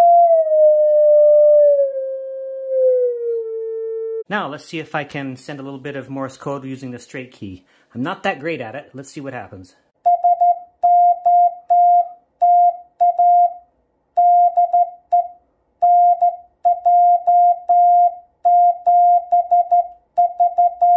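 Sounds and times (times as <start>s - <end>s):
morse code beeps: 10.1s - 13.6s, 14.2s - 20.9s.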